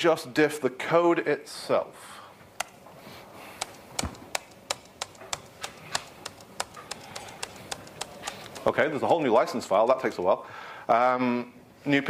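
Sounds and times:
laptop key clicking: 2.6s - 2.8s, 3.6s - 8.7s.

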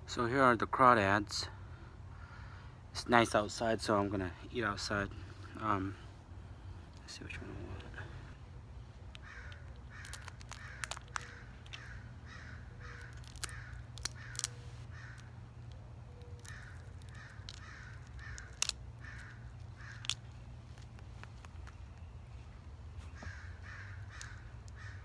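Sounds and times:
crow cawing: 2.1s - 2.8s, 9.1s - 15.4s, 16.1s - 20.3s, 23.1s - 25.0s
shell cracking by hand: 9.0s - 12.0s, 12.8s - 22.1s, 24.1s - 25.0s.

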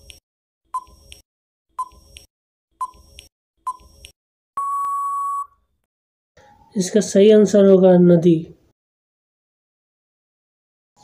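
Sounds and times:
electronic countdown beeps: 0.7s - 1.2s, 1.8s - 2.2s, 2.8s - 5.6s
long electronic beep: 4.6s - 5.6s.

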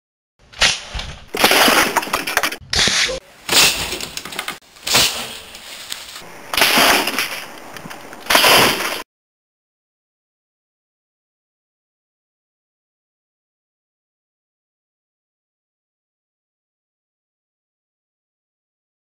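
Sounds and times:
smashing crashes: 0.6s - 7.5s.

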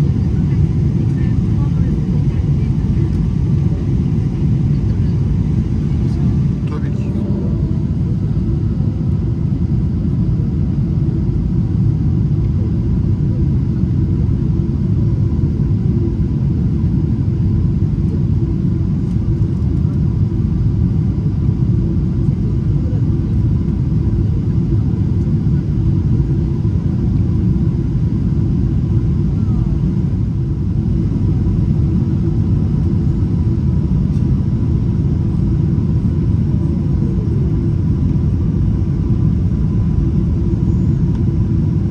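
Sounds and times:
airplane cabin rumble: 0.0s - 41.9s
faint steady whine: 14.0s - 41.9s.

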